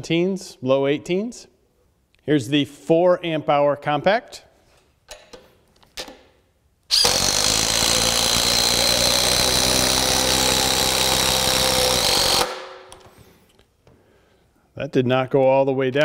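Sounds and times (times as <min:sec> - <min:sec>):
impact driver hammering: 0:06.9 - 0:13.0.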